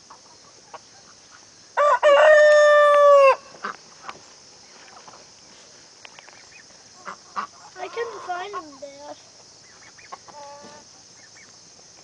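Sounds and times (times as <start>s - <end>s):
rooster crowing: 1.8s - 3.5s.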